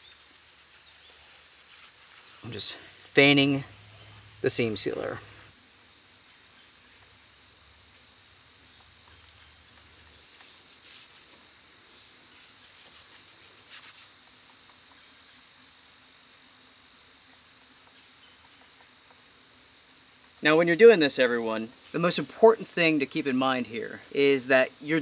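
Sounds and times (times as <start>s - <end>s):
brush strokes on fabric: 0.0s - 5.5s, 9.8s - 15.0s, 21.8s - 22.8s
insects trilling: 0.0s - 25.0s.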